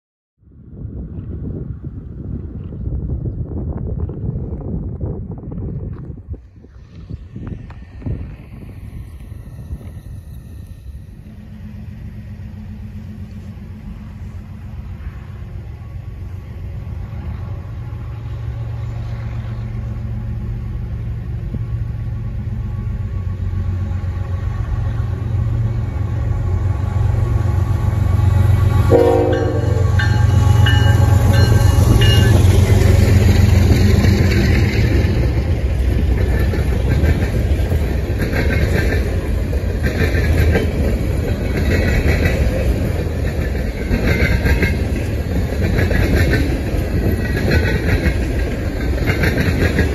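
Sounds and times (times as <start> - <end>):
diesel locomotives rumbling: 0.4 - 49.9
clickety-clack of wheels on rails: 0.9 - 49.9
train horn toot: 28.1 - 32.8.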